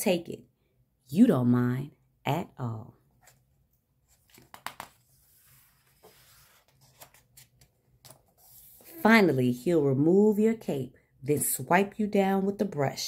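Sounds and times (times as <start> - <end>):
soft clicks of book pages: 3.2 - 5.1
paper rustle: 3.2 - 8.9
light taps of pages handled: 4.3 - 5.0.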